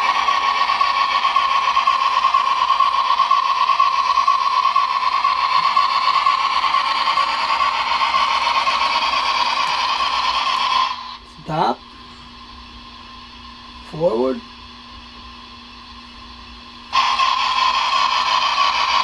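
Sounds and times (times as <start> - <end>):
hiss: 0.0 - 11.2, 16.9 - 19.0
model locomotive motor whirring: 0.0 - 11.2, 16.2 - 19.0.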